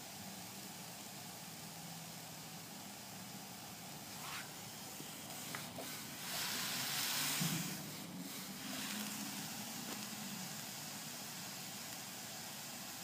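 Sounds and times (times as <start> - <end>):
steam iron hissing: 0.0 - 13.0
rush of steam: 4.0 - 13.0.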